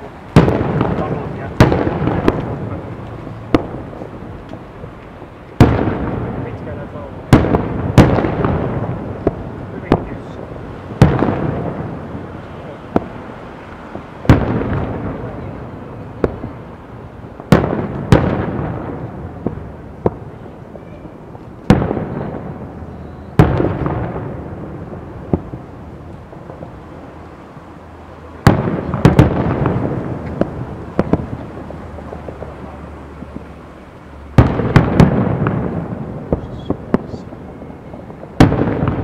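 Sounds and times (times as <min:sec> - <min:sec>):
firework shells bursting: 0:00.0 - 0:12.2
small firework pops: 0:00.3 - 0:10.4, 0:17.4 - 0:24.4, 0:28.4 - 0:33.6, 0:34.4 - 0:39.0.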